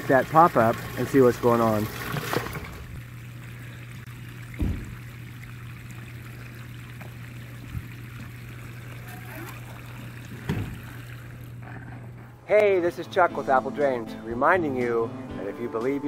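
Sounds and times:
water trickling from pipe: 0.0s - 11.7s
steady low hum: 2.8s - 12.6s
low thump: 4.6s - 5.0s.

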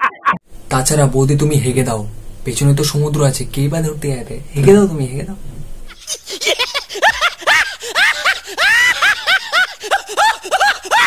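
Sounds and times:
high-pitched laugh: 5.9s - 11.0s.

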